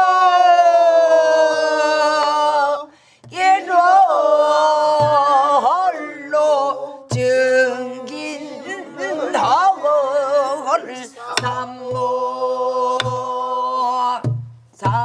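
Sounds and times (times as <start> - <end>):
person singing ornamented phrases: 0.0 - 14.2
barrel drum strokes: 11.4 - 12.1, 13.0 - 13.3.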